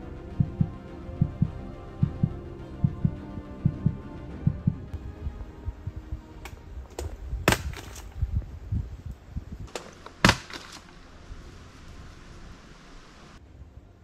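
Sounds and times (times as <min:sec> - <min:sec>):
soft low thuds: 0:00.4 - 0:07.6
sticks and twigs snapping: 0:06.4 - 0:08.2, 0:09.7 - 0:11.0.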